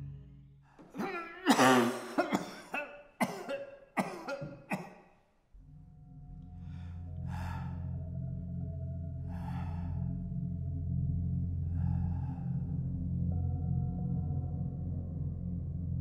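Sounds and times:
low droning music: 0:00.0 - 0:02.6, 0:05.6 - 0:16.0
elderly man coughing harshly: 0:00.9 - 0:05.0.

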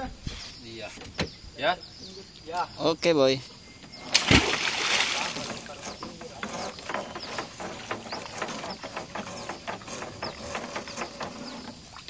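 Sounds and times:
rope squeaks: 0:05.2 - 0:12.0
anchor rope clicking and creaking: 0:05.4 - 0:11.9.

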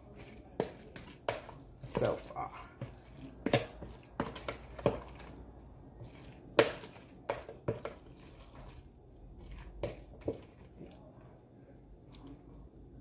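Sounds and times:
spoon stirring wet mixture: 0:00.0 - 0:13.0
spoon knocking on plastic: 0:00.2 - 0:05.3, 0:06.0 - 0:08.2, 0:09.8 - 0:10.6.

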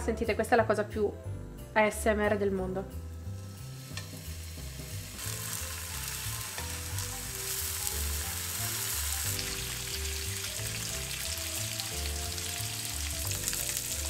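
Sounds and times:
bacon sizzling on a griddle: 0:03.2 - 0:14.0.

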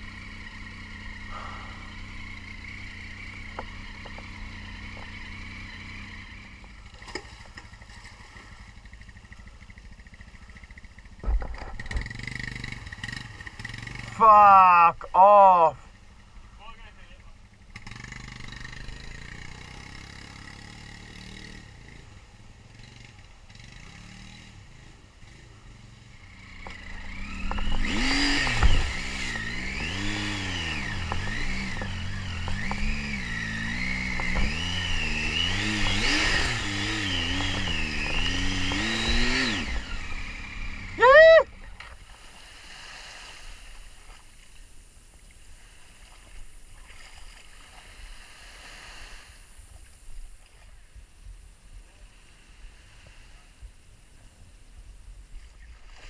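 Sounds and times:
motorcycle engine revving hard: 0:00.0 - 0:15.7, 0:17.4 - 0:41.5.

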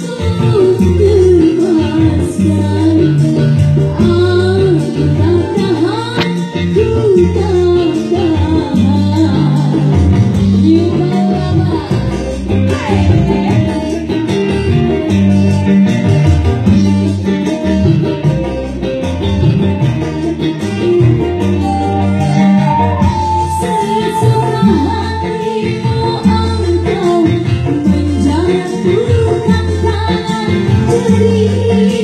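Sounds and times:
person singing: 0:00.0 - 0:14.5, 0:21.6 - 0:32.0
plucked guitar: 0:00.0 - 0:32.0
stepping bass line: 0:00.0 - 0:32.0.

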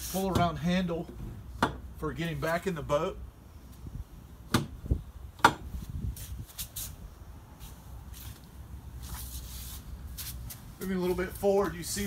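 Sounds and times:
low steady rumble: 0:00.0 - 0:12.0
boat hardware clicking and knocking: 0:01.1 - 0:01.9, 0:05.4 - 0:05.7.

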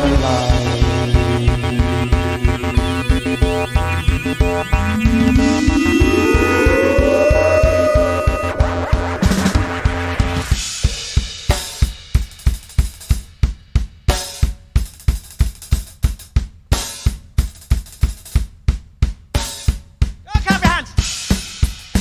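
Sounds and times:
synth chord: 0:00.6 - 0:10.4.

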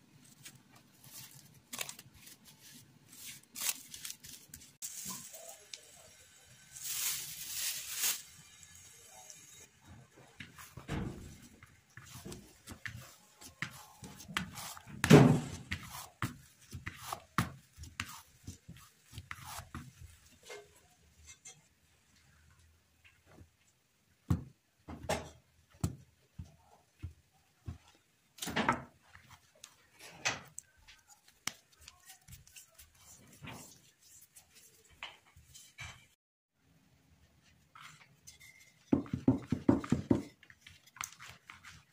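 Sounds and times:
hands patting bread dough: 0:11.6 - 0:20.1, 0:39.0 - 0:41.9
knife cutting dough: 0:11.6 - 0:21.6.

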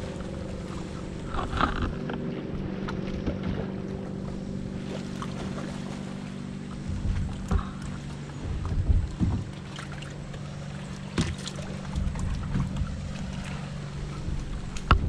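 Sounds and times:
steady low hum: 0:00.0 - 0:15.0
water lapping against boat hull: 0:00.0 - 0:15.0
wind buffeting microphone: 0:00.0 - 0:15.0
knocks and bumps: 0:06.8 - 0:09.7.

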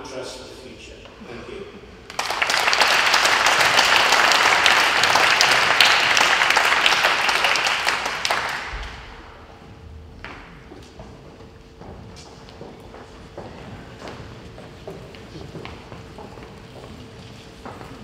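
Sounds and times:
audience applauding: 0:02.1 - 0:09.3.

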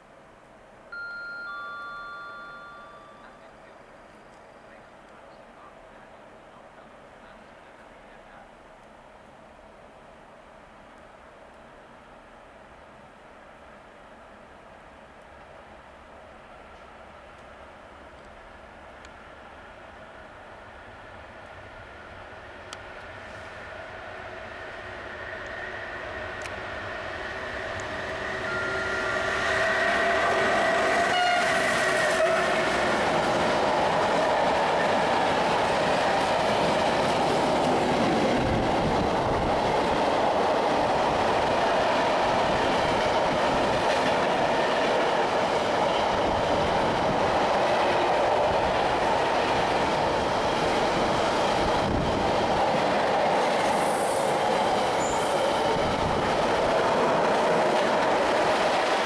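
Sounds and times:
train wagons rumbling on rails: 0:24.8 - 0:59.0
locomotive horn: 0:28.2 - 0:32.8.

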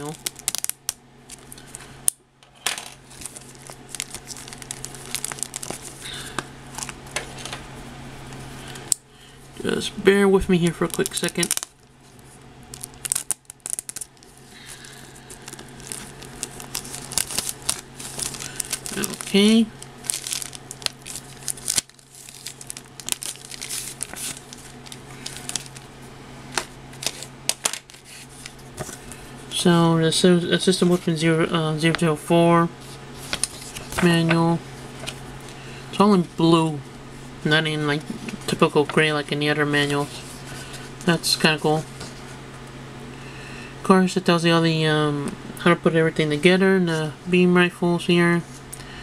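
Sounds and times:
plastic bag crinkling: 0:00.0 - 0:01.9, 0:03.0 - 0:07.6, 0:10.6 - 0:29.3, 0:32.8 - 0:36.0
faint low hum: 0:00.0 - 0:49.0.

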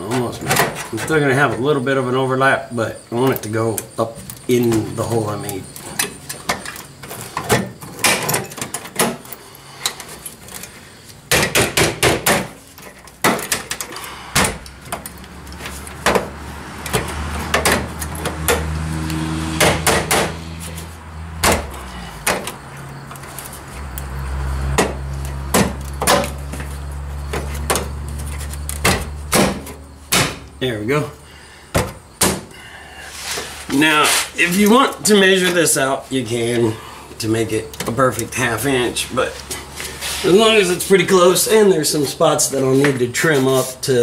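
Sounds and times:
sharp knocks and taps on metal: 0:11.3 - 0:18.7, 0:19.6 - 0:20.4, 0:21.4 - 0:23.3, 0:24.7 - 0:26.7, 0:28.6 - 0:30.5, 0:31.7 - 0:32.5.

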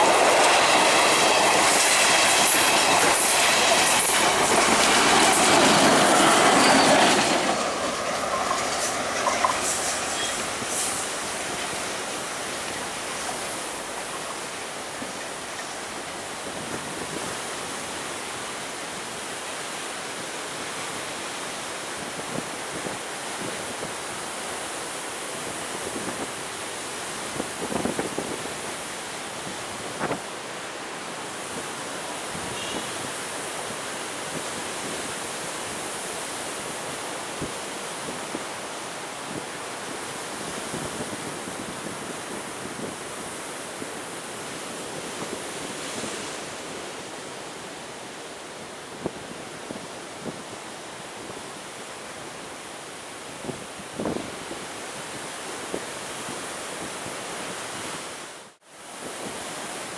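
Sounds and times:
wind buffeting microphone: 0:00.0 - 0:18.0, 0:25.3 - 0:30.3, 0:39.2 - 0:51.6
sea surf rushing: 0:00.0 - 0:59.9
strong coastal wind: 0:00.0 - 0:59.9.

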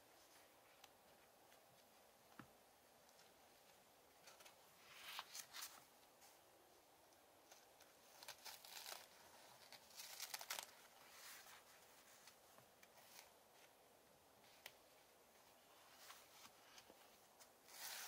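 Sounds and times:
paper pages turning: 0:04.2 - 0:05.9, 0:07.5 - 0:13.7.

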